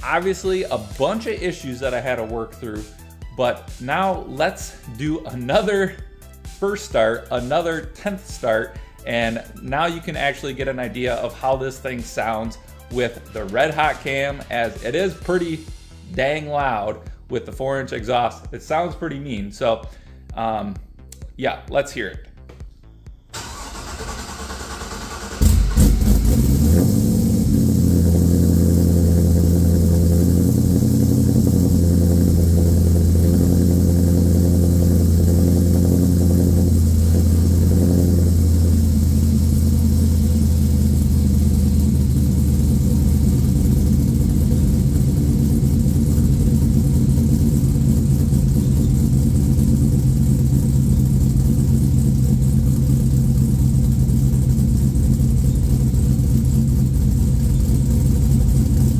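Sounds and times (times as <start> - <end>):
loud car engine idling: 23.4 - 58.9.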